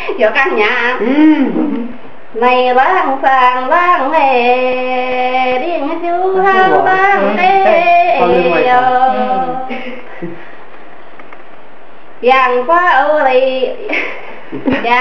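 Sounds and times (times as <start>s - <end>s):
woman singing unaccompanied: 2.3s - 9.8s, 12.2s - 13.9s.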